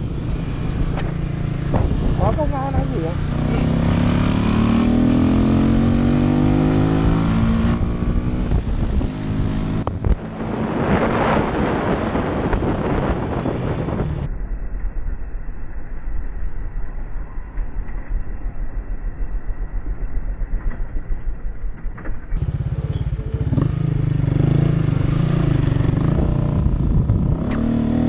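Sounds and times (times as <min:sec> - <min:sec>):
motorcycle engine accelerating: 0:00.0 - 0:14.3, 0:21.7 - 0:28.0
wind noise on microphone: 0:00.0 - 0:28.0.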